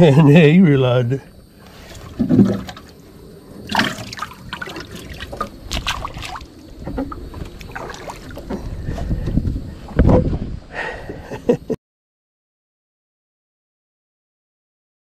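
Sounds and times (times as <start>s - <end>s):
water trickling and splashing: 1.5s - 9.2s.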